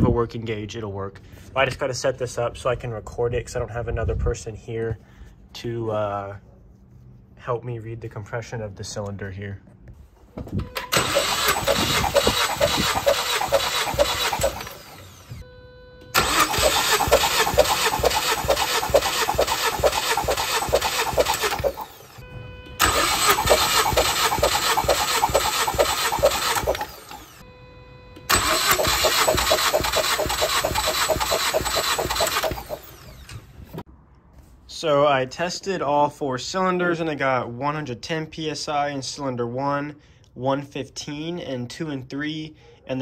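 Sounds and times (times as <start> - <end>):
engine cranking on starter: 10.7 - 15.4, 16.0 - 27.4, 28.2 - 33.8.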